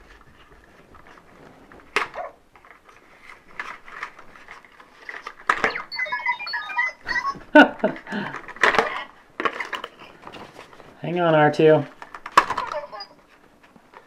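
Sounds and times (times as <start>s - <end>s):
cardboard packaging rustling: 0.0s - 5.5s
short electronic beeps: 5.6s - 7.4s.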